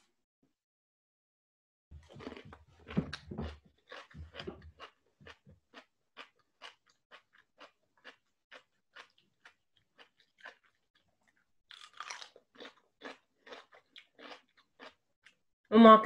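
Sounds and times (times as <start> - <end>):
chewing crunchy cucumber: 2.0 - 15.4.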